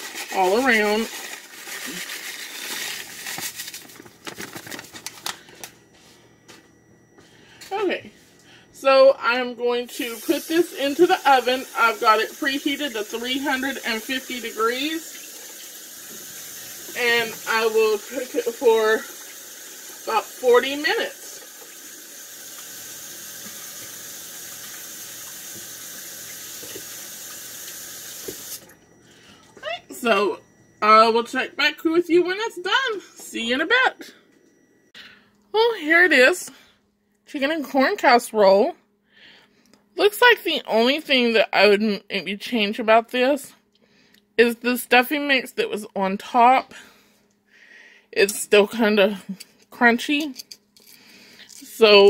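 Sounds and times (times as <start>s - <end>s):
bag crinkling: 0.0s - 5.8s
faucet running into sink: 9.9s - 28.8s.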